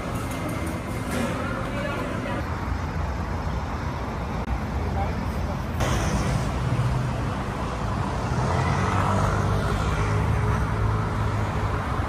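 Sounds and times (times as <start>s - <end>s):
road traffic hum: 0.0s - 12.0s.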